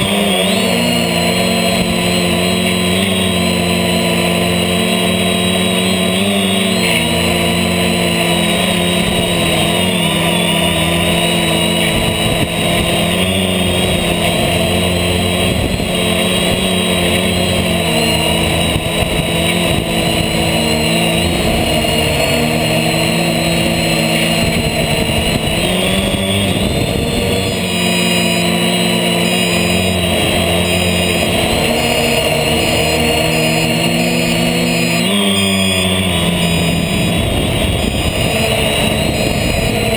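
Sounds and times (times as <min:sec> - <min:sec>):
drone motors and propellers whining: 0:00.0 - 0:39.9
gusty wind rumble: 0:08.8 - 0:28.2, 0:36.0 - 0:39.9.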